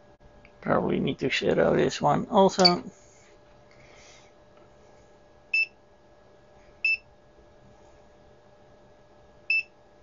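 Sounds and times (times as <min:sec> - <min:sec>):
multimeter beeps: 0:05.5 - 0:05.8, 0:06.8 - 0:07.1, 0:09.5 - 0:09.8.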